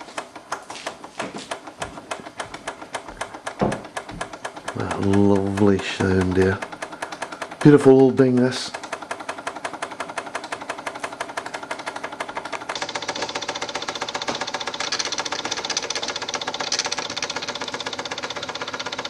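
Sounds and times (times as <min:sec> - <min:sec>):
toy steam engine running: 0:00.2 - 0:19.0.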